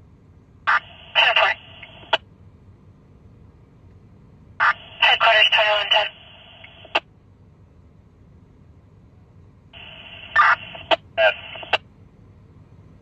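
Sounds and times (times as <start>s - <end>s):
garbled radio bursts: 0.7s - 2.2s, 4.6s - 7.0s, 9.8s - 11.8s
radio hiss: 0.7s - 2.2s, 4.6s - 7.0s, 9.8s - 11.8s
radio squelch click: 0.7s - 2.3s, 4.6s - 7.1s, 9.8s - 11.8s
sharp radio clicks: 0.7s - 2.3s, 4.6s - 7.1s, 9.8s - 11.9s.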